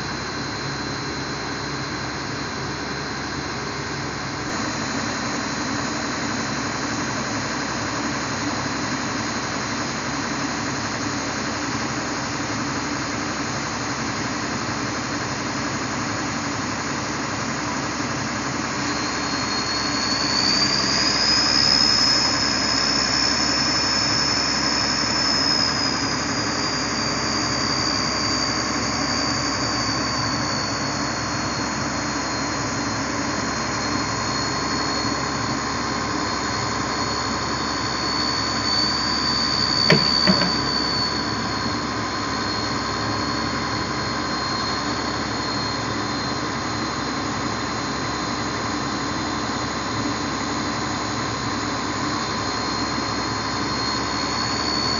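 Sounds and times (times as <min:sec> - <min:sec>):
sharp knocks: 0:39.9 - 0:40.8
excavator diesel engine running: 0:39.9 - 0:41.0.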